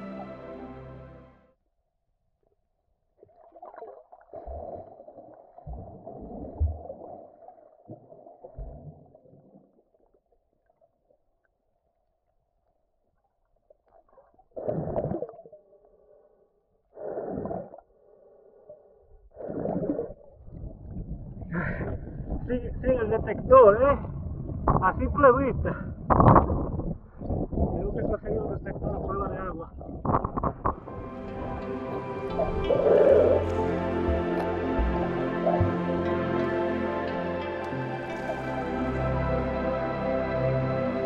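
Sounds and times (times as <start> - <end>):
underwater gurgling and sloshing: 2.4 - 11.9, 13.5 - 38.8.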